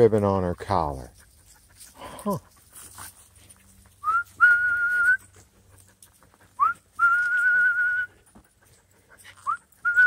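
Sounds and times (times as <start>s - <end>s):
person whistling: 4.0s - 5.2s, 6.6s - 8.1s, 9.5s - 10.0s.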